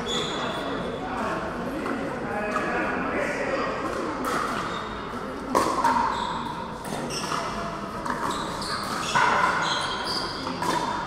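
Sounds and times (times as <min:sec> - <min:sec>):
sneakers squeaking on court: 0:00.0 - 0:00.7, 0:06.0 - 0:10.9.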